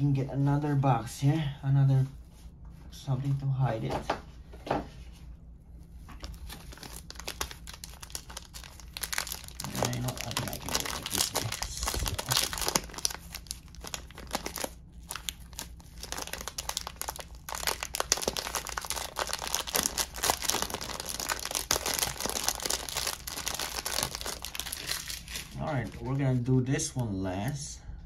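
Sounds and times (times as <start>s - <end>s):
plastic wrap crinkling and tearing: 6.1s - 26.1s.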